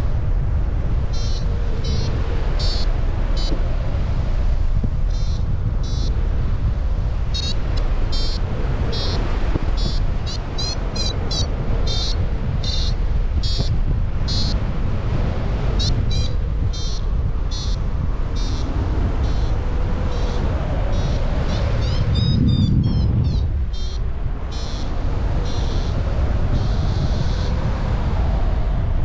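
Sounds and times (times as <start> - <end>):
wind noise on microphone: 0.0 - 29.0.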